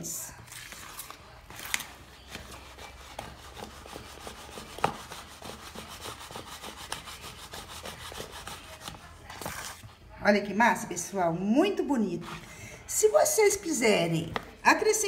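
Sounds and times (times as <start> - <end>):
spoon stirring thick batter: 0.3 - 10.1.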